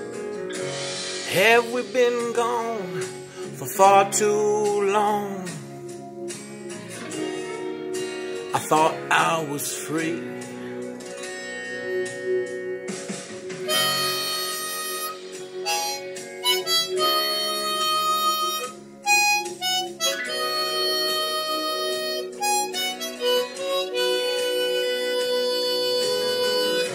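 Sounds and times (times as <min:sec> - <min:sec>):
harmonica melodic solo: 0:13.6 - 0:26.9.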